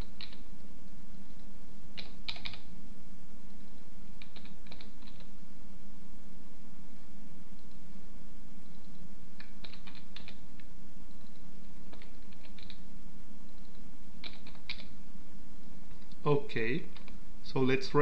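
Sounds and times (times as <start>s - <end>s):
steady low hum: 0.0s - 18.0s
keyboard keys clicking: 0.1s - 0.4s, 2.0s - 2.6s, 4.2s - 5.3s, 8.6s - 12.8s, 13.6s - 14.9s.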